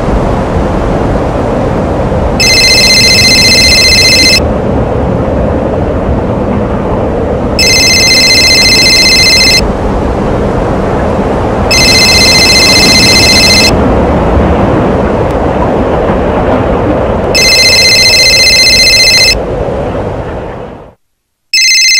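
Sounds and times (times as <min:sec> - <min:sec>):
steady rushing noise: 0:00.0 - 0:21.0
telephone ringing: 0:02.4 - 0:04.4, 0:07.6 - 0:09.6, 0:11.7 - 0:13.8, 0:17.4 - 0:19.4, 0:21.5 - 0:21.9.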